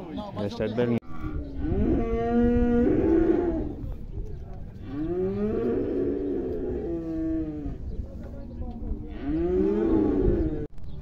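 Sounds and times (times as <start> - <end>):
cows mooing: 1.6 - 3.8, 4.8 - 7.8, 9.0 - 10.7.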